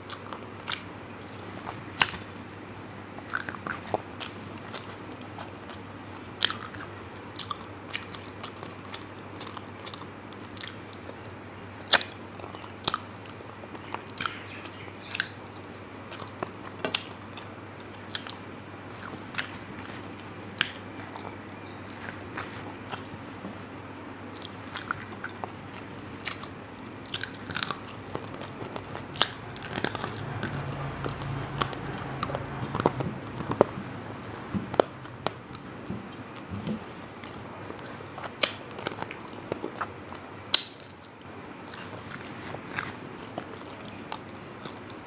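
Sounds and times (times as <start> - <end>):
crunches while chewing: 0.0 - 45.0
wet chewing: 0.0 - 45.0.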